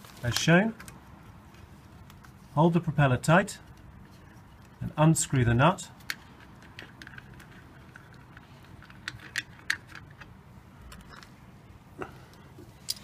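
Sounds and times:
faint clicks and rattles: 0:06.0 - 0:11.4.

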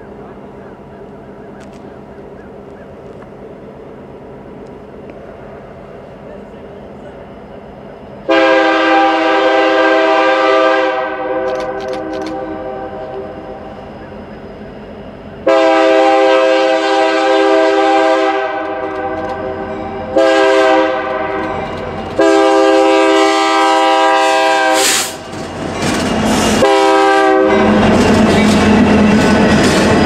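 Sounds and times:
wheel on rail noise: 0:00.0 - 0:30.0
locomotive air horn blasts: 0:08.3 - 0:13.3, 0:15.4 - 0:25.2, 0:26.5 - 0:27.9.

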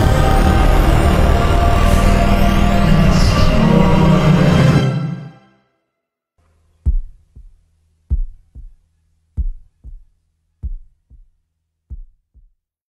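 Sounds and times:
heartbeat double thumps: 0:06.8 - 0:12.6.

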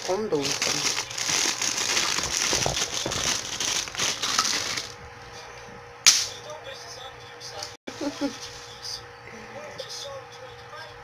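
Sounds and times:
plastic packaging crinkling: 0:00.0 - 0:05.0.

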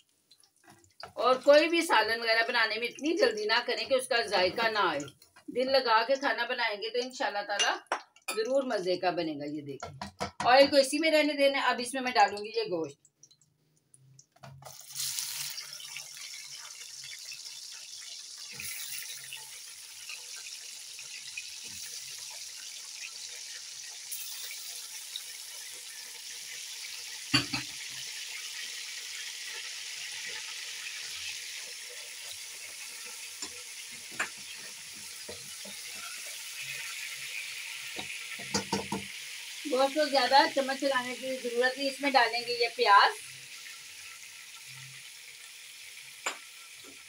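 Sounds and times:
meat sizzling in hot oil: 0:14.4 - 0:47.0.

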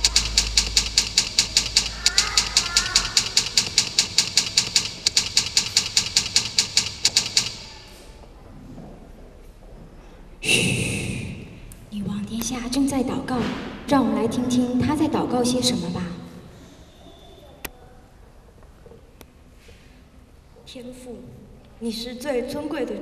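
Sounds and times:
rapid even clicking: 0:00.0 - 0:07.8.

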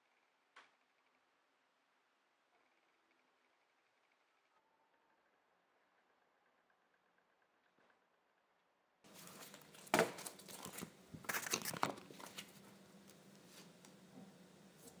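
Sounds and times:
plastic folders crinkling: 0:09.1 - 0:12.6.

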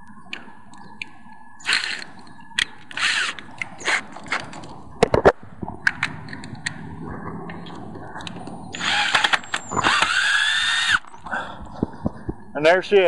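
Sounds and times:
cordless drill whining: 0:08.8 - 0:11.0.

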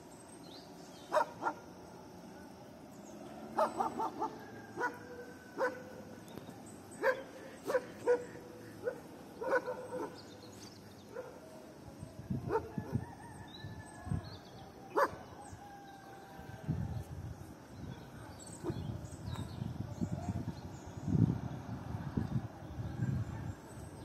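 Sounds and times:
dog barking: 0:01.1 - 0:01.6, 0:03.6 - 0:05.0, 0:05.6 - 0:05.8, 0:07.0 - 0:10.2, 0:12.5 - 0:12.7, 0:15.0 - 0:15.2.

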